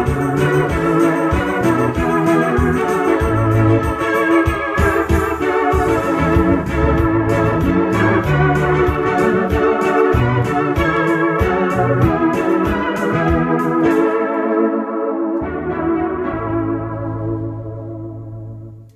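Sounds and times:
organ-toned keyboard chords: 0.0 - 18.9
steady drum beat: 4.8 - 12.3
bass line: 5.2 - 11.0, 15.4 - 18.9.

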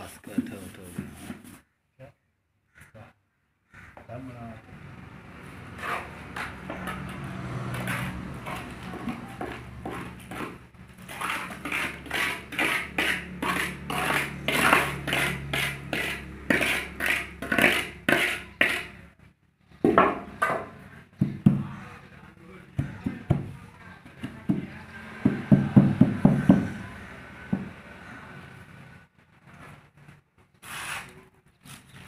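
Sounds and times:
cement scraping and slapping in molds: 5.8 - 19.0.

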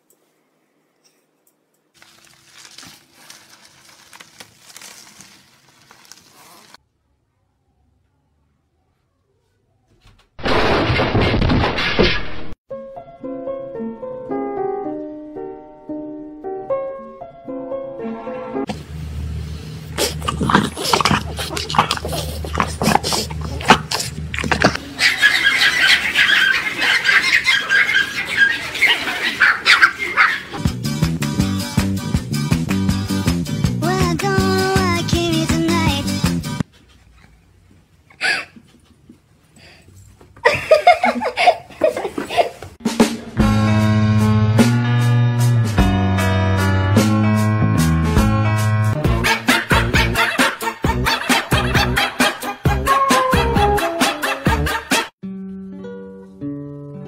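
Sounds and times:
bubble wrap crinkling: 1.9 - 6.8
dog snuffling: 19.9 - 24.8
small dogs yapping: 20.0 - 30.6.

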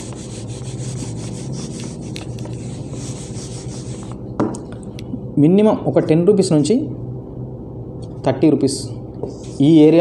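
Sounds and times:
duster scrubbing a whiteboard: 0.0 - 4.2.

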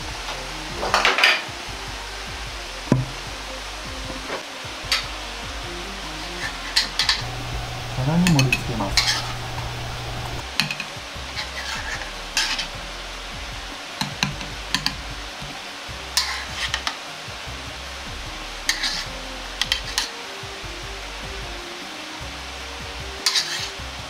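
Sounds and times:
steady kitchen hiss: 0.0 - 24.0
ladle clinking and scraping wok: 7.2 - 10.9, 23.3 - 23.6.

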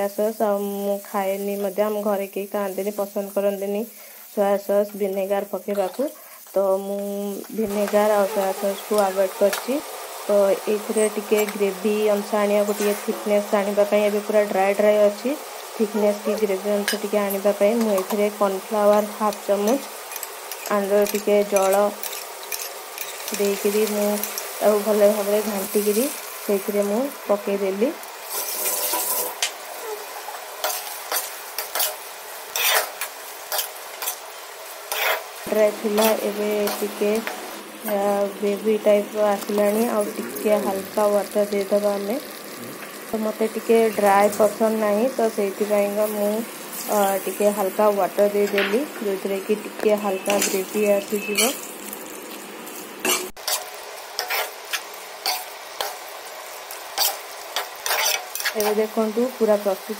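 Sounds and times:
steady sizzle: 0.0 - 59.9
spatula scraping pan: 28.3 - 29.4, 30.3 - 34.2, 34.9 - 35.3, 53.0 - 56.0, 57.0 - 58.8.

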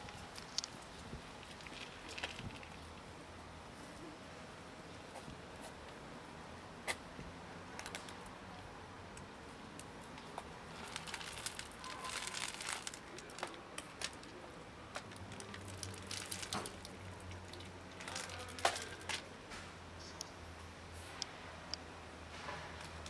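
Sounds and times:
kibble pattering onto concrete: 0.0 - 2.9, 9.7 - 19.3
plastic container crinkling: 10.7 - 19.3.

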